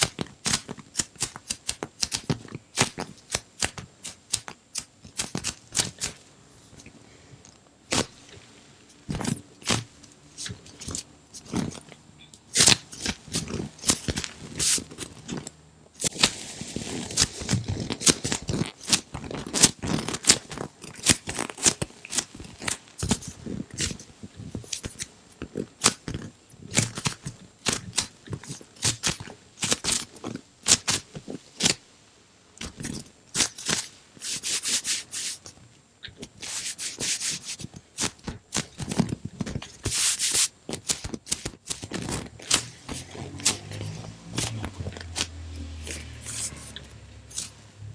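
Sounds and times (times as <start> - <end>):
foam toy crackling and creaking: 7.1 - 31.8, 32.6 - 47.6
soft rubbing: 41.9 - 47.7.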